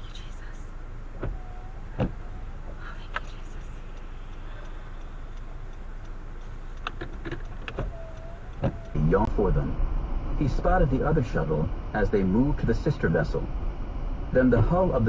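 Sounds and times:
car engine idling: 0.0 - 9.7
sharp ticks: 0.1 - 9.0.

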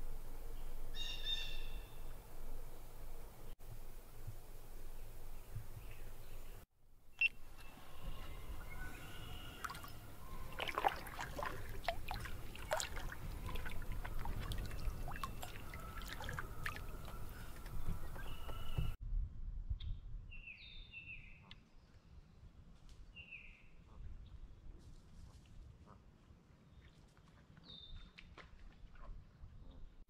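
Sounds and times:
low steady rumble: 0.0 - 6.6
water trickling and dripping: 8.2 - 19.0
small splashes and clicks: 9.6 - 18.6.

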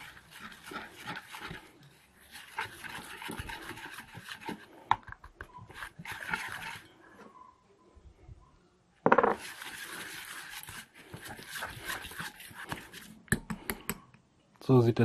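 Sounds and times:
whisk scraping and swishing: 0.0 - 7.4, 9.4 - 13.3.

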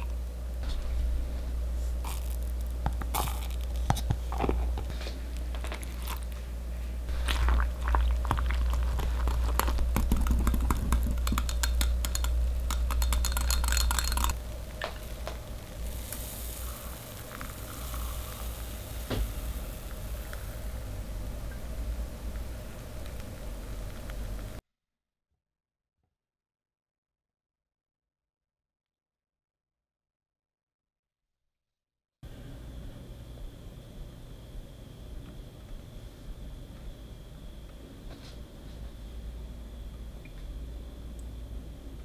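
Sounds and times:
low steady hum: 0.0 - 24.6, 32.2 - 42.0
whisk clinking against glass: 10.3 - 14.4
faint hiss: 14.4 - 24.6.

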